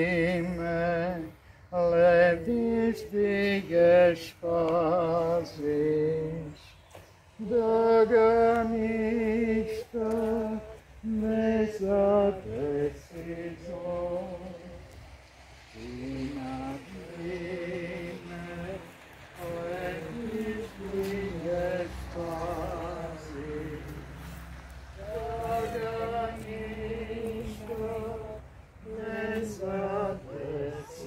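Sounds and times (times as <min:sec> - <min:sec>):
slow chant-like hymn singing: 0:00.0 - 0:31.0.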